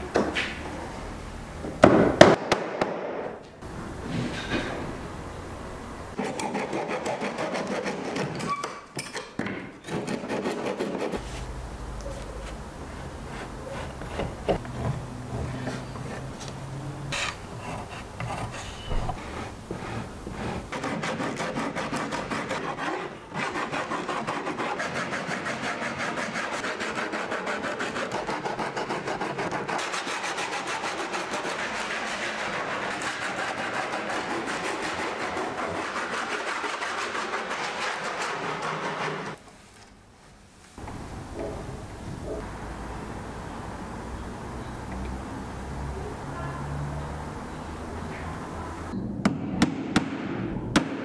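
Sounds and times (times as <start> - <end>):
sandpaper rasping on wood: 6.2 - 8.3, 9.9 - 11.5, 17.1 - 39.4.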